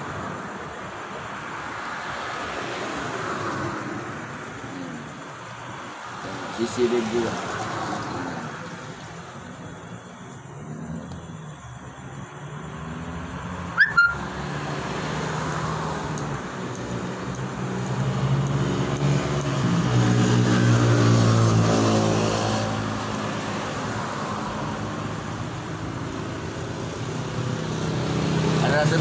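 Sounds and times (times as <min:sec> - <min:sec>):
sharp rising chirp: 0:13.2 - 0:14.6
vehicle engine passing by: 0:17.6 - 0:29.0.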